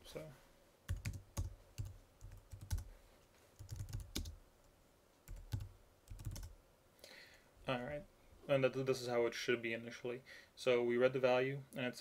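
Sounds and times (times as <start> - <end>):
computer keyboard typing: 0.9 - 2.9, 3.6 - 4.4, 5.3 - 6.6.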